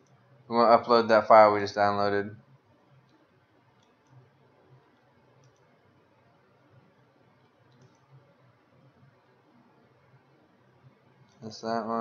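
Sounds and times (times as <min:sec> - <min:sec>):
faint computer mouse clicks: 0:03.8 - 0:04.3, 0:04.9 - 0:05.8, 0:07.4 - 0:08.2.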